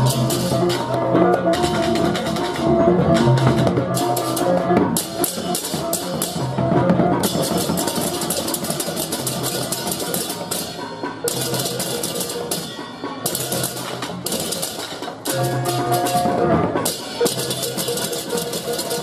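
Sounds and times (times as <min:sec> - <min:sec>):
drums: 0:00.0 - 0:19.0.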